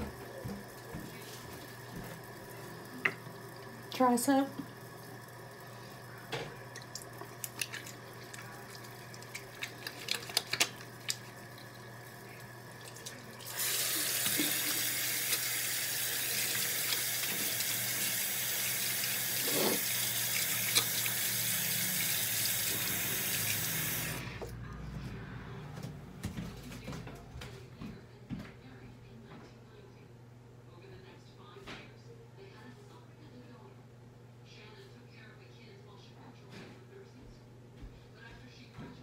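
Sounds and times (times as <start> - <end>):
sink tap running: 0.0 - 24.5
hands washing under water: 4.7 - 24.2.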